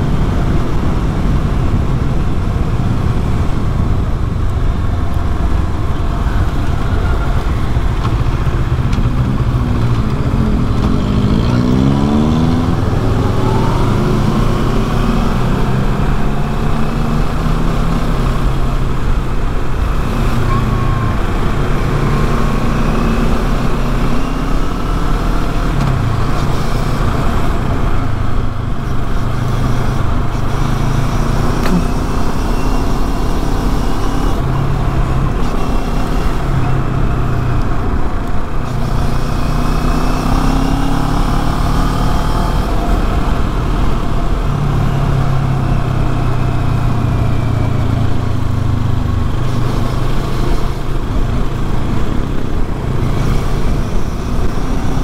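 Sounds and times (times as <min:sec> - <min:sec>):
motorcycle engine accelerating and shifting: 0:00.0 - 0:55.0.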